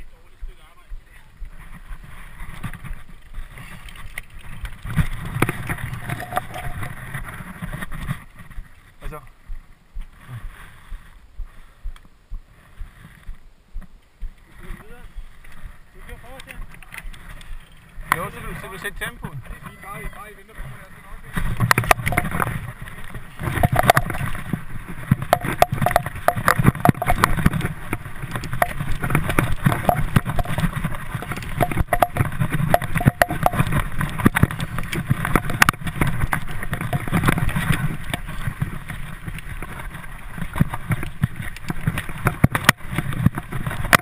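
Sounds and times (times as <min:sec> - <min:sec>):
bike clicks and rattles: 0:01.5 - 0:08.7, 0:16.3 - 0:19.7, 0:21.3 - 0:44.0
tyres rumbling on dirt: 0:15.7 - 0:44.0
wind on microphone: 0:20.8 - 0:44.0.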